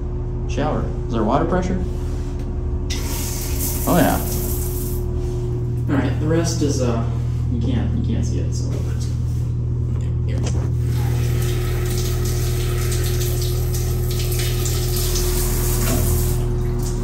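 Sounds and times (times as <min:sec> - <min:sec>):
low hum: 0:00.0 - 0:17.0
shower spray on tiles: 0:02.9 - 0:05.0.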